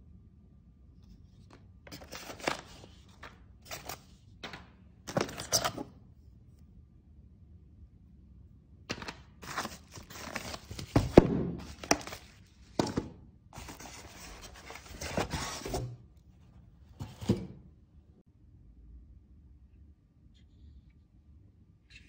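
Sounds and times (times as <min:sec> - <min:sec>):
plastic wrapping rustling: 0:09.4 - 0:12.4.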